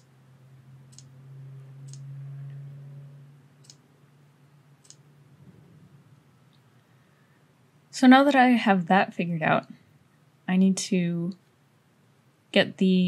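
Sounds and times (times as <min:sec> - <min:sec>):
low steady hum: 0:00.0 - 0:13.0
computer mouse clicking: 0:00.9 - 0:01.1, 0:01.8 - 0:02.0, 0:03.6 - 0:03.8, 0:04.8 - 0:05.0.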